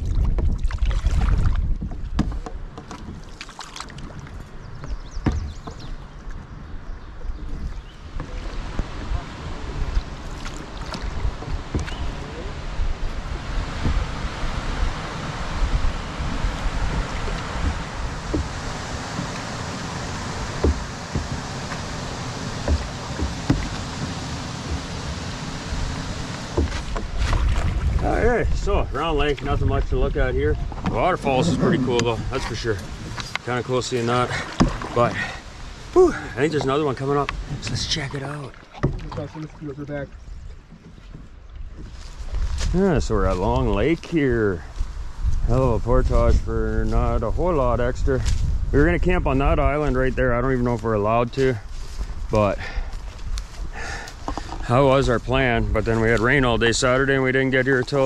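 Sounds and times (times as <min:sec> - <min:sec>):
paddle strokes splashing: 0:00.0 - 0:28.2, 0:30.6 - 0:42.7
wind rumble on microphone: 0:00.0 - 0:38.2, 0:38.8 - 0:58.0
paddle knocking against canoe: 0:00.1 - 0:28.1, 0:30.5 - 0:42.0, 0:53.6 - 0:54.7
waterfall rushing: 0:08.2 - 0:27.1, 0:31.0 - 0:38.5.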